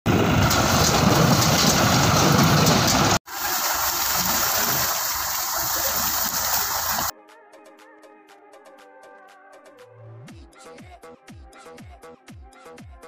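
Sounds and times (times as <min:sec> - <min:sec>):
tractor-driven field machinery running: 0:00.1 - 0:07.1.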